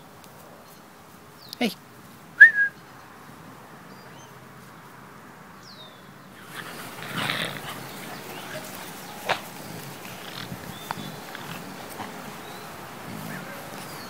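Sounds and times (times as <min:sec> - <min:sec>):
dogs growling and scuffling: 0:06.3 - 0:14.0.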